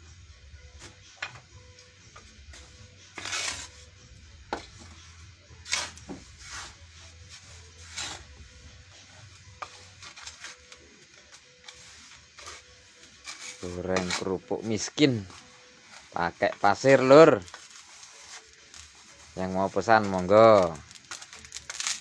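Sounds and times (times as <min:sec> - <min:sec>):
wooden spatulas scraping sand in wok: 0:02.5 - 0:03.9, 0:05.6 - 0:08.3, 0:09.0 - 0:21.6.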